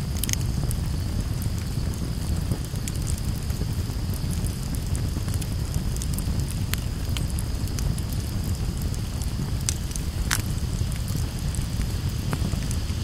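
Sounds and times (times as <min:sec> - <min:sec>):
campfire crackling: 0:00.0 - 0:13.0
low rumble: 0:00.0 - 0:13.0.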